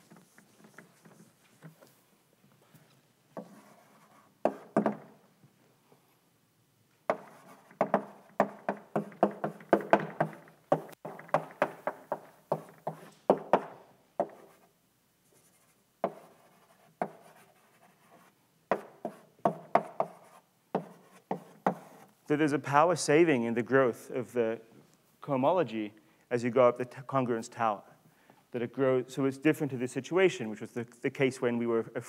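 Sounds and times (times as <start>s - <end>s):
chalk writing on blackboard: 0.0s - 1.8s, 3.4s - 5.0s, 7.1s - 14.7s, 15.3s - 22.2s.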